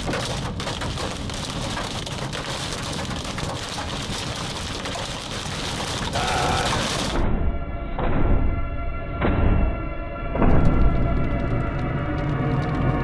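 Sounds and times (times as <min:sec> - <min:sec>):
rain and hail hitting a car: 0:00.0 - 0:07.2, 0:10.6 - 0:13.0.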